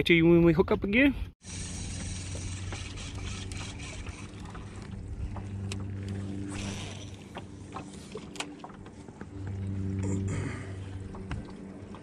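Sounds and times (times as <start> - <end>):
boat motor humming: 1.4 - 12.0
gear clicking and knocking: 1.6 - 4.3.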